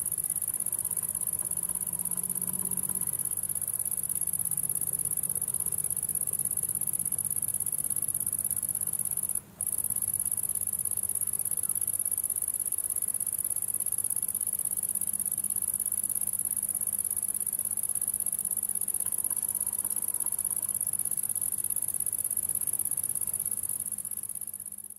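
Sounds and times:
insect high-pitched buzz: 0.0 - 24.9.

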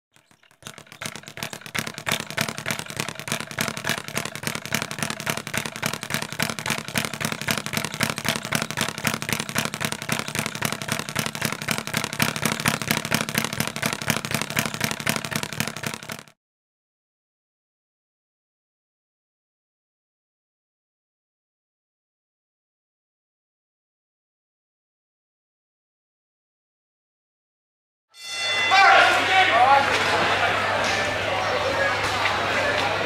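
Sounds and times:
rapid crackling patter: 0.1 - 16.4.

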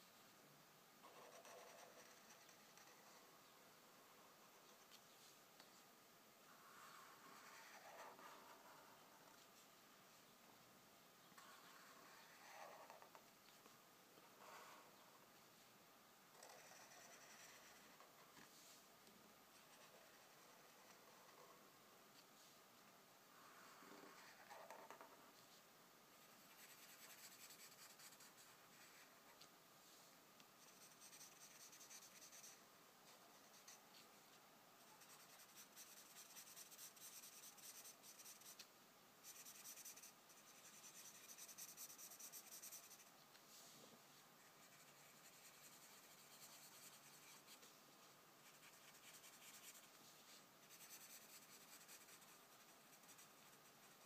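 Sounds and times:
marker scratching on paper: 1.0 - 3.2, 6.7 - 9.0, 11.4 - 13.2, 16.4 - 18.1, 26.2 - 29.2, 30.6 - 32.6, 34.8 - 38.6, 39.2 - 43.1, 44.4 - 47.7, 48.4 - 54.0.

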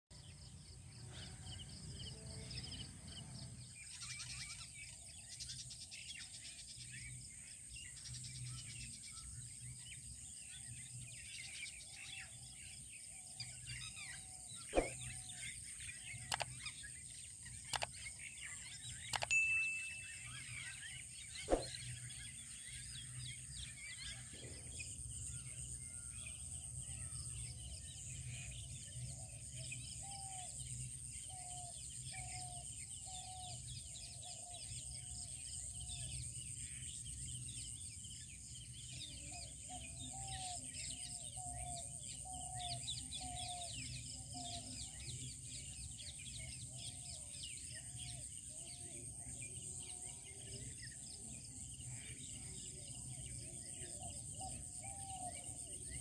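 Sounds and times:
birds chirping: 8.8 - 31.5.

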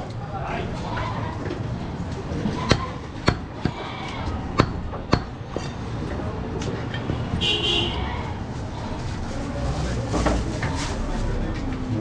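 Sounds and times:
background noise: 0.0 - 12.0
cleaver chopping meat on wood: 2.6 - 5.4.

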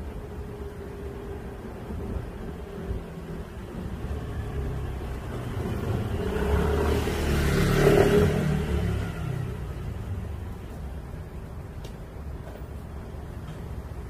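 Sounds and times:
vehicle passing by: 3.1 - 10.7.

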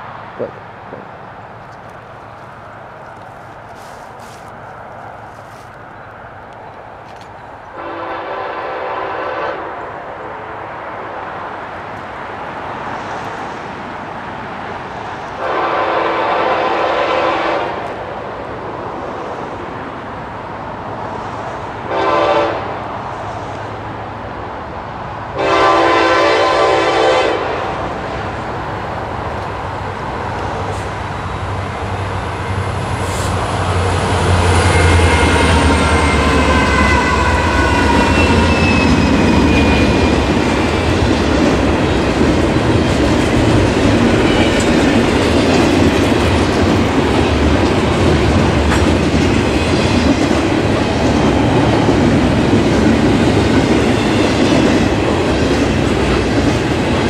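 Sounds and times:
train rumble: 0.0 - 57.0
locomotive air horn: 7.7 - 9.8, 15.4 - 17.9, 21.9 - 22.7, 25.4 - 27.8, 34.5 - 40.1.

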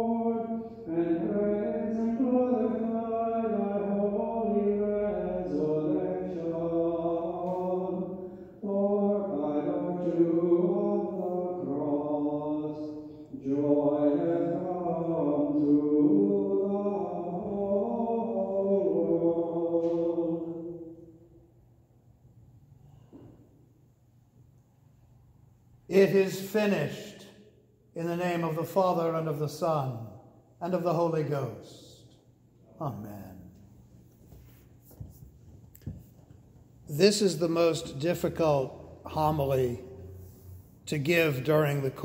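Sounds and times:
person chanting unaccompanied: 0.0 - 21.0.

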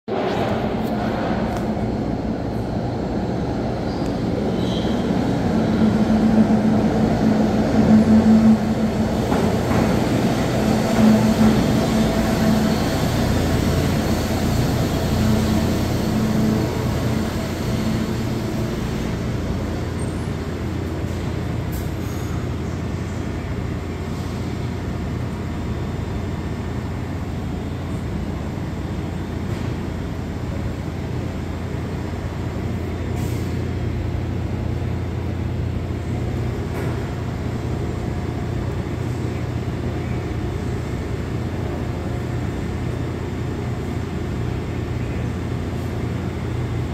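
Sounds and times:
echoing train rumble: 0.1 - 46.9.

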